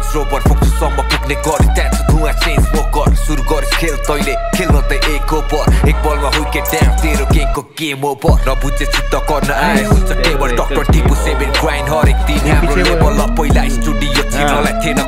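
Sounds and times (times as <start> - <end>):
rapping over a beat: 0.0 - 15.0.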